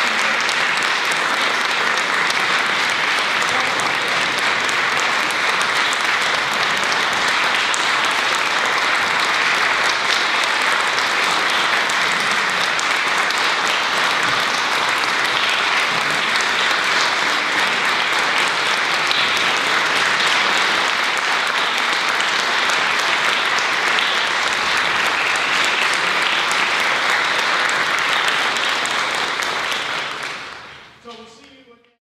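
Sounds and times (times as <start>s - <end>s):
audience applause: 0.0s - 31.0s.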